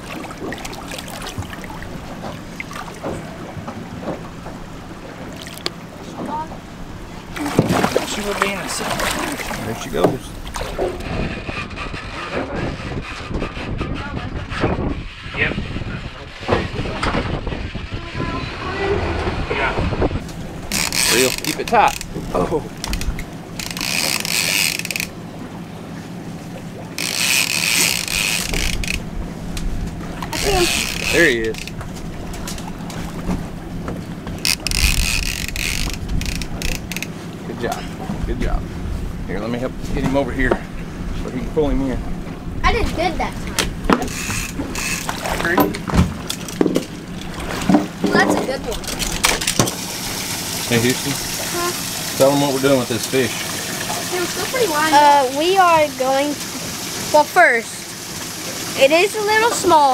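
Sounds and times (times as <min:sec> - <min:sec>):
water lapping against boat: 0:00.0 - 0:59.9
fishing reel whirring and clicking: 0:20.7 - 0:22.2, 0:22.8 - 0:25.2, 0:27.0 - 0:29.0, 0:30.2 - 0:31.8, 0:34.4 - 0:37.1, 0:44.0 - 0:45.2.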